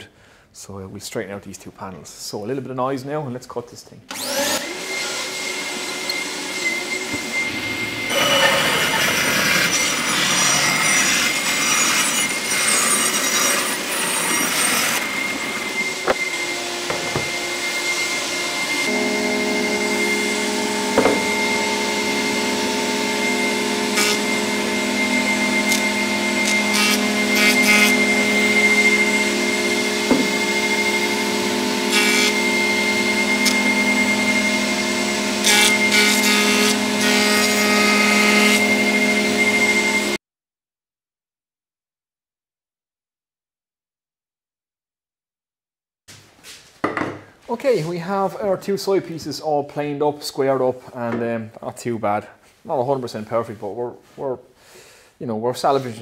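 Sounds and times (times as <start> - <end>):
planer humming: 4.1 - 40.1
bandsaw cutting wood: 4.1 - 40.2.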